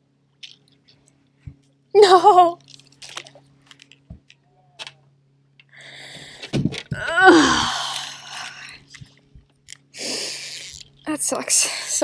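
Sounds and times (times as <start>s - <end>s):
woman groaning aww: 7.0s - 8.4s.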